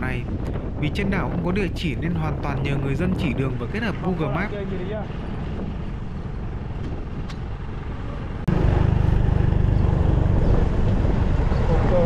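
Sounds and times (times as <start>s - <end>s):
road noise: 0.0s - 12.0s
motor scooter engines rumbling: 0.6s - 12.0s.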